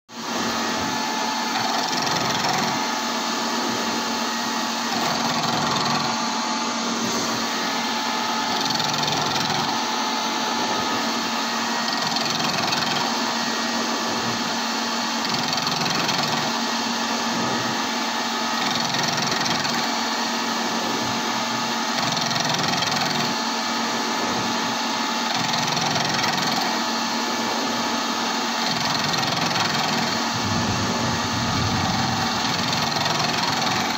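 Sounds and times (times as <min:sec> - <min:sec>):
grating metal cutting: 0:28.7 - 0:33.9
machine hum: 0:29.6 - 0:33.9.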